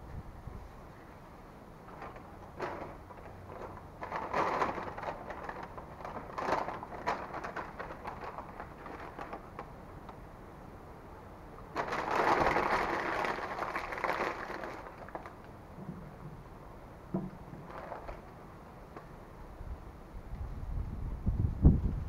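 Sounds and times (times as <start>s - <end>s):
paper wrappers rustling and crinkling: 1.8s - 10.3s, 11.7s - 15.6s, 17.3s - 19.1s.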